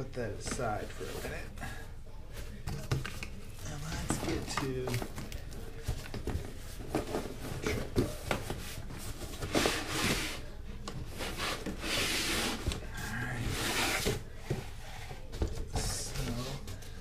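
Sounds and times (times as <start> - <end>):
cardboard boxes scraping: 6.8 - 10.5.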